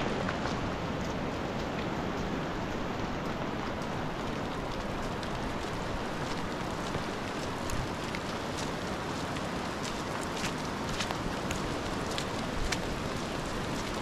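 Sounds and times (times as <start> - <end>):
fast river rushing: 0.0 - 14.0
rain: 0.0 - 14.0.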